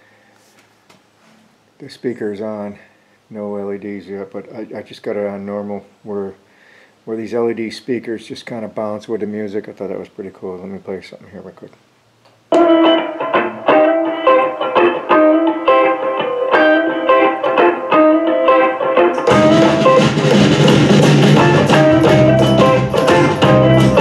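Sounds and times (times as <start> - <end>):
plucked guitar music: 12.5 - 24.0
bass and drums: 19.1 - 24.0.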